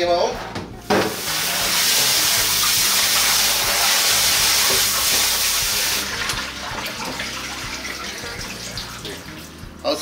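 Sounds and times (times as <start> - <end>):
spray faucet running: 1.0 - 9.7.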